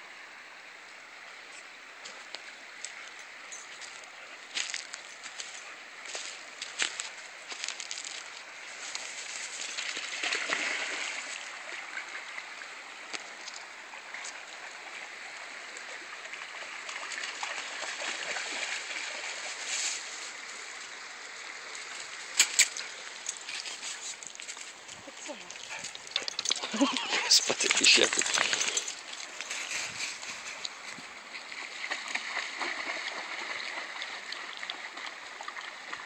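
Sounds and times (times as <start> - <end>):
running water: 0.9 - 36.0
dog splashing through water: 9.7 - 11.4, 25.4 - 30.7, 31.5 - 36.0
sharp snaps: 22.4 - 22.9.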